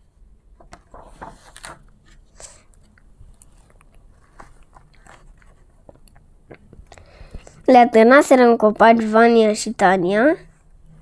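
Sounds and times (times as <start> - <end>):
book handling clicks and rustles: 0.6 - 6.9.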